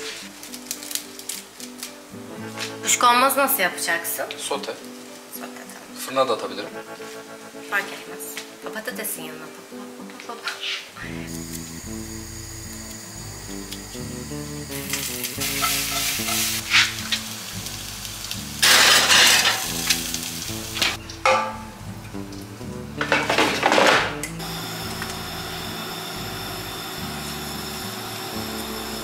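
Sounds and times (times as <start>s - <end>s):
background music: 0.0s - 29.0s
loud hissing bursts: 11.0s - 21.0s, 24.4s - 29.0s.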